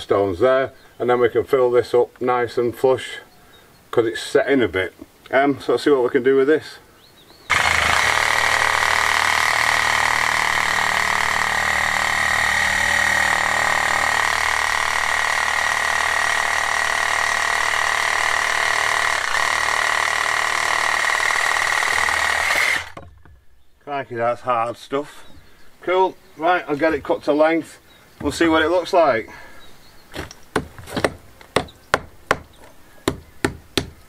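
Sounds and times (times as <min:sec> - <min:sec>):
power saw whining through wood: 0:07.5 - 0:23.2.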